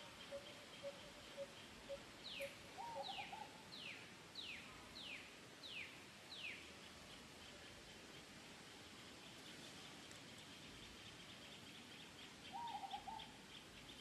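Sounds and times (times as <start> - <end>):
low bird call: 0.0 - 5.2, 11.6 - 14.0.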